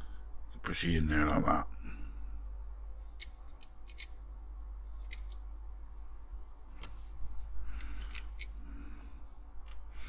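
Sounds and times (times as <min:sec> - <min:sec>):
low hum: 0:00.0 - 0:10.0
small plastic parts clicking: 0:03.2 - 0:04.2, 0:04.8 - 0:05.5, 0:07.7 - 0:08.6.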